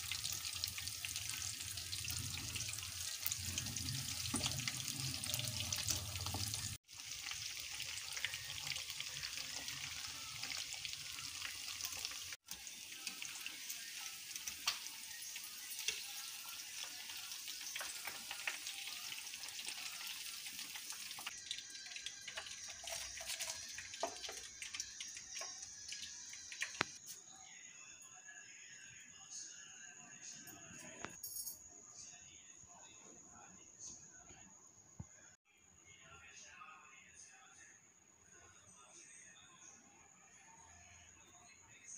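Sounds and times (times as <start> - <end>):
chicken deep-frying in oil: 0.0 - 27.0.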